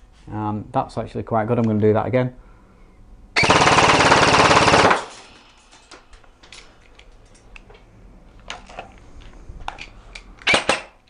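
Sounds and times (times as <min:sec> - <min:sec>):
airsoft rifle full-auto burst: 0:03.4 - 0:05.1.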